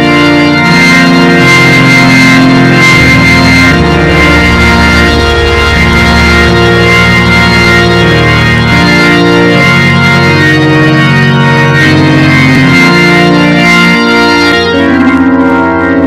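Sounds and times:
organ playing held chords: 0.0s - 16.0s.

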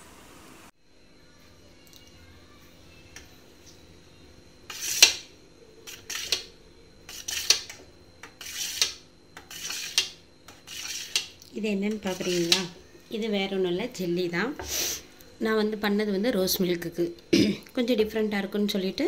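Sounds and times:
knife scraping steel pan: 4.7s - 5.2s, 5.9s - 6.5s, 7.1s - 12.8s.

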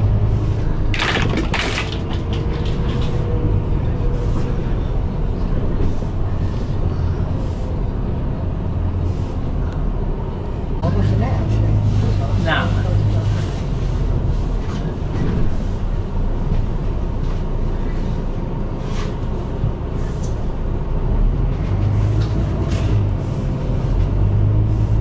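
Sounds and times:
bus engine and road rumble: 0.0s - 25.0s
bodywork rattles and knocks: 0.9s - 3.5s.

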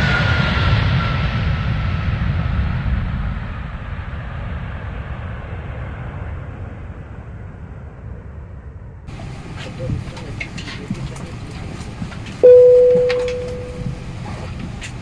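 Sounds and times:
jet engines winding down: 9.1s - 15.0s.

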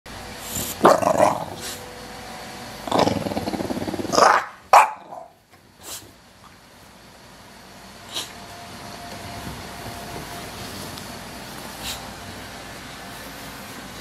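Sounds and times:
dog growling: 0.7s - 1.8s, 2.8s - 5.3s.

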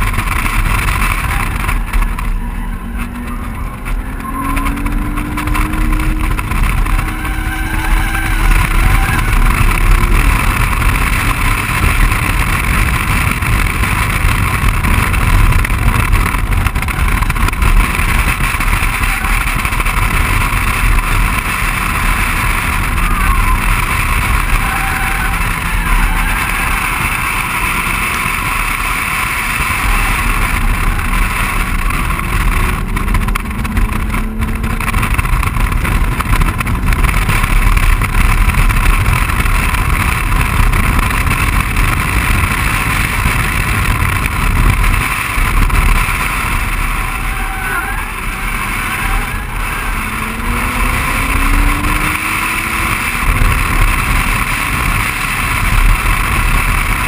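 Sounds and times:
car engine accelerating: 0.0s - 57.0s
wind and road noise: 0.0s - 57.0s.

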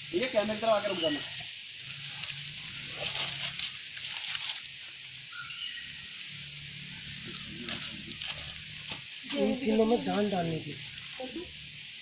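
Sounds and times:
steady high hiss: 0.0s - 12.0s
dry leaves rustling: 0.7s - 5.8s, 7.3s - 11.2s
bird chirp: 5.3s - 6.2s.

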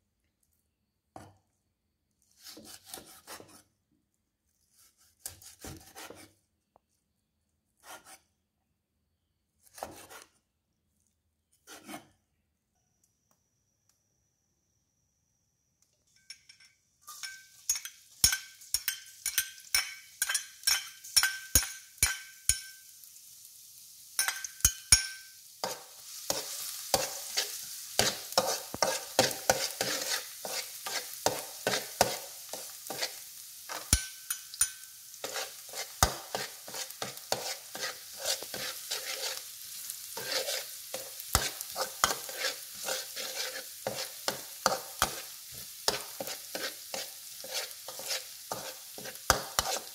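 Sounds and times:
metal spatula scraping a wok: 11.6s - 12.2s, 17.0s - 22.8s, 24.2s - 49.9s
onion sizzling in hot oil: 17.1s - 49.9s.

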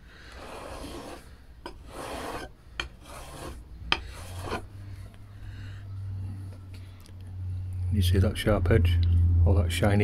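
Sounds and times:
chisel scraping on whetstone: 0.3s - 4.7s.

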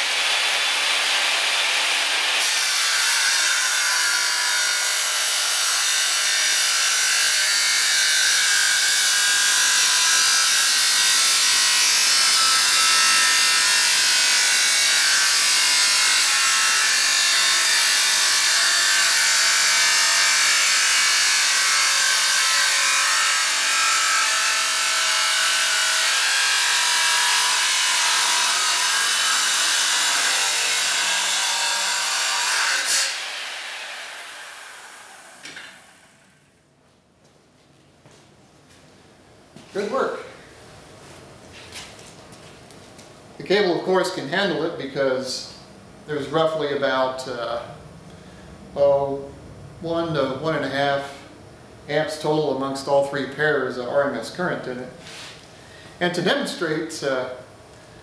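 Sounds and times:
saw grinding through metal: 0.0s - 36.3s.

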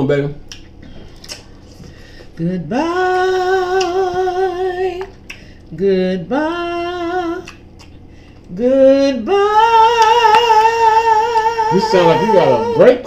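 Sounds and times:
woman singing unaccompanied: 2.4s - 5.1s, 5.7s - 7.6s, 8.5s - 13.0s.

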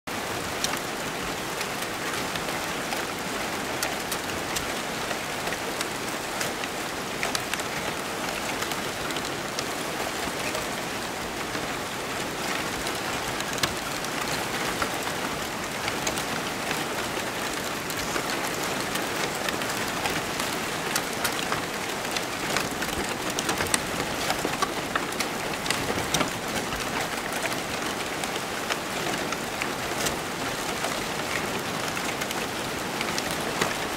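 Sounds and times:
paper crackling and rustling: 21.2s - 27.7s.

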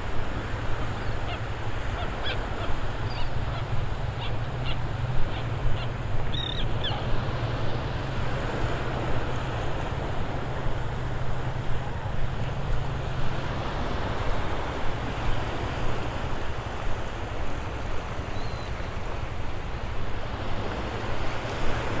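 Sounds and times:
shorebirds calling: 0.8s - 7.4s.

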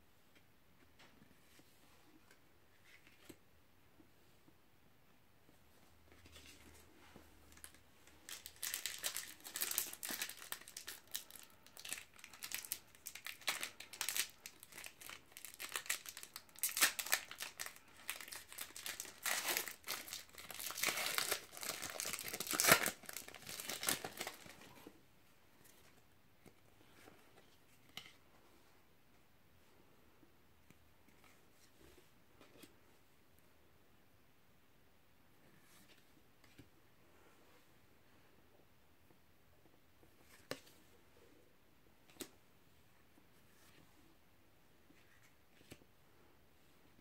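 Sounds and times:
foil wrapper crinkling: 8.3s - 24.6s.

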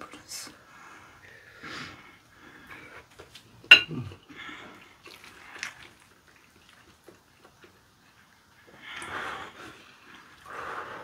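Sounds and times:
noodles slurped and chewed: 4.1s - 10.7s.

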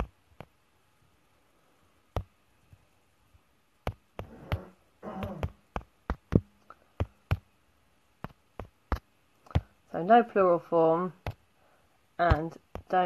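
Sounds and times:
sharp irregular clicks and taps: 0.0s - 0.6s, 2.1s - 2.9s, 3.8s - 7.6s, 8.2s - 9.8s, 11.2s - 11.5s, 12.2s - 13.0s.

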